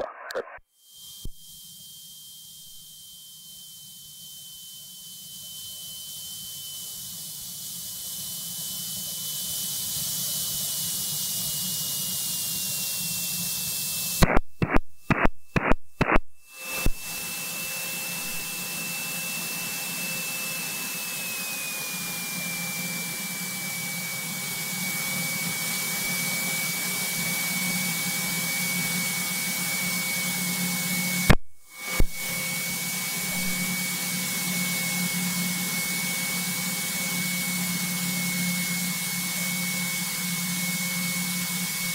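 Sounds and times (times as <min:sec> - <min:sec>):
clicks: 0:00.0 - 0:00.6, 0:14.2 - 0:17.1, 0:31.3 - 0:32.2
thin whine: 0:00.0 - 0:41.9
aircraft engine and airflow rush: 0:07.0 - 0:41.9.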